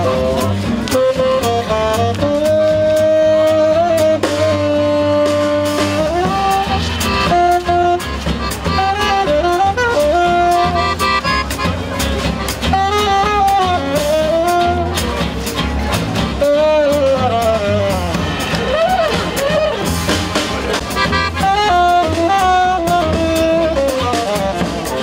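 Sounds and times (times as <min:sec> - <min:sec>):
saxophone melody: 0:00.0 - 0:15.4, 0:16.2 - 0:25.0
double bass: 0:00.0 - 0:25.0
drum kit beat: 0:00.0 - 0:25.0
accordion: 0:03.9 - 0:25.0.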